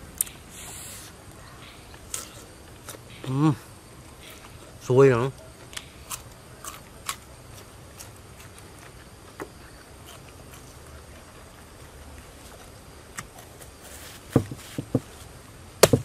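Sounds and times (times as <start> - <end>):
quiet steady hiss: 0.0 - 16.0
chewing: 5.4 - 13.8.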